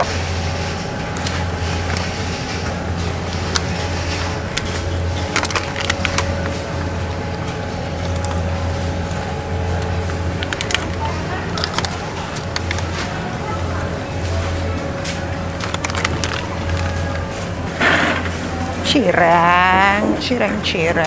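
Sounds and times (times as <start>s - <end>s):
refrigeration hum: 0.0s - 21.0s
plastic egg packs clicking: 4.5s - 6.5s, 10.4s - 13.0s, 15.5s - 17.2s.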